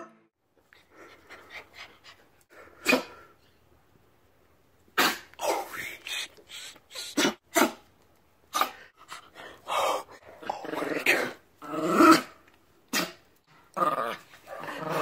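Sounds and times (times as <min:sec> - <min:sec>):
dogs play-growling: 0:09.0 - 0:12.4, 0:13.6 - 0:15.0.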